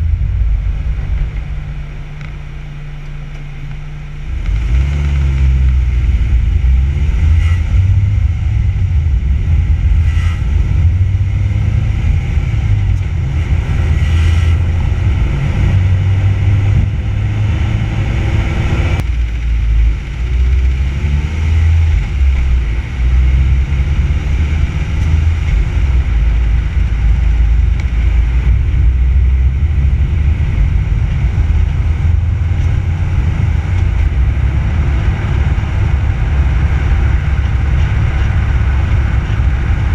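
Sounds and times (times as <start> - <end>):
car road and engine noise: 0.0 - 39.9
wind buffeting microphone: 22.0 - 39.9.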